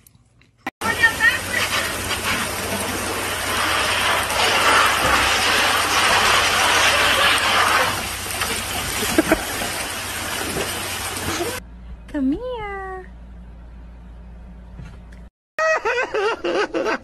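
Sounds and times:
splash into pool: 0:00.8 - 0:11.6
water rushing through slide: 0:00.8 - 0:11.6.

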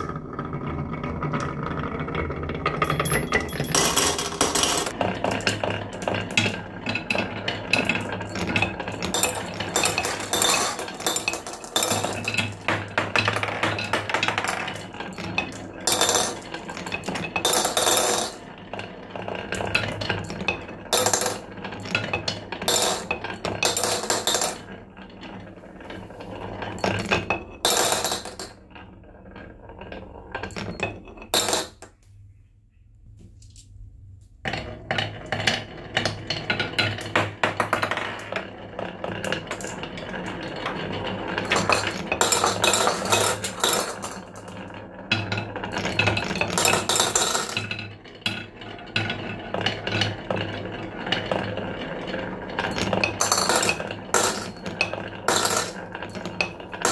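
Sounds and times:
marbles dropping into plastic bowl: 0:00.0 - 0:18.4, 0:22.0 - 0:24.6, 0:26.8 - 0:28.6, 0:34.5 - 0:47.8, 0:52.6 - 0:56.9
marbles clattering on wooden track: 0:00.0 - 0:32.0, 0:34.4 - 0:56.9.

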